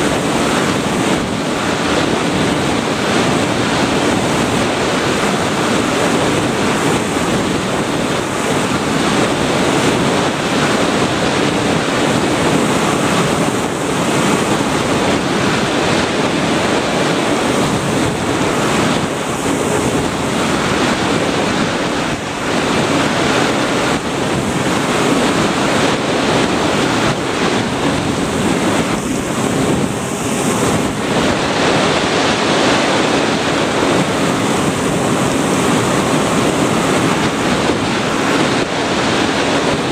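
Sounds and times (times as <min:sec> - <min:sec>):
air rushing noise: 0:00.0 - 0:39.9.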